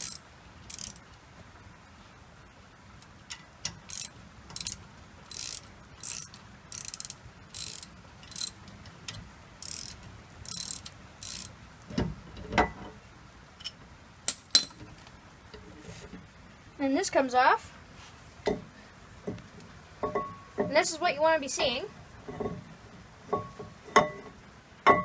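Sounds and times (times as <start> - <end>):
ratchet wrench clicking: 0.0 - 1.0, 3.6 - 8.6, 9.6 - 11.5.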